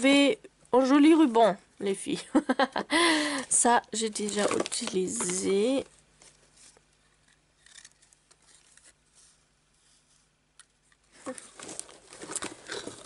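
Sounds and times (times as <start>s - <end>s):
ribbons rustling and clicking: 3.3s - 9.0s, 10.6s - 13.0s.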